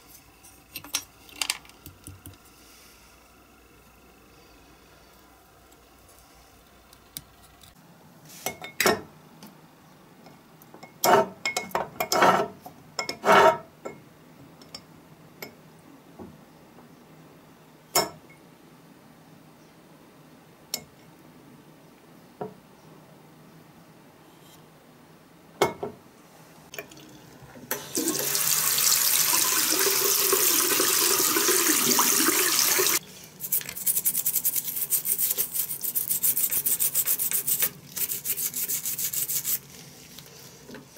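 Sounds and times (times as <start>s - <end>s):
water running into a tub: 26.8s - 33.0s
toothbrush scrubbing metal: 33.4s - 39.8s.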